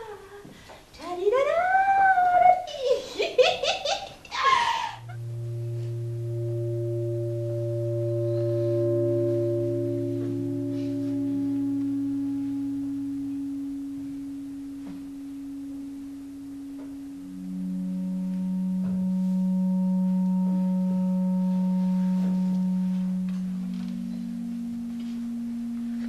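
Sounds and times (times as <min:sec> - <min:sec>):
long held pure tones: 0:00.0 - 0:26.0.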